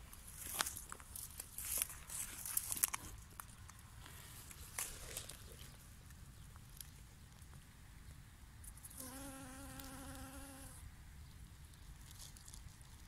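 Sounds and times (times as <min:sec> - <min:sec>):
flying insect buzzing: 0:08.9 - 0:10.8.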